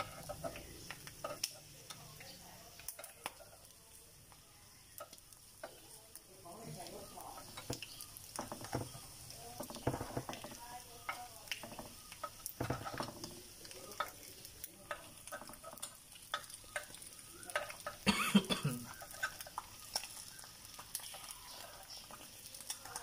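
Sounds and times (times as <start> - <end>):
metal utensil scraping pan: 0.0 - 2.0, 7.0 - 18.0, 18.9 - 23.0
eggs sizzling in pan: 0.0 - 23.0.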